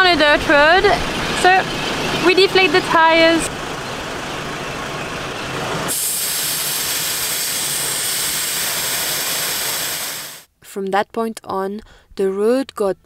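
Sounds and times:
air hissing out of tyre valve: 5.9 - 10.5.

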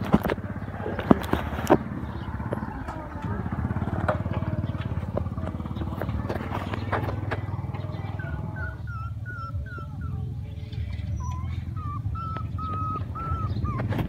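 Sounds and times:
puppy whimpering: 6.2 - 14.0.

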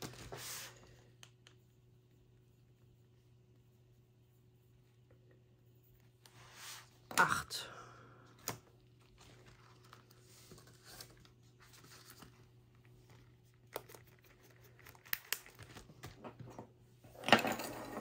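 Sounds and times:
faint steady hum: 0.0 - 18.0
paper rustling and crinkling: 8.8 - 16.2.

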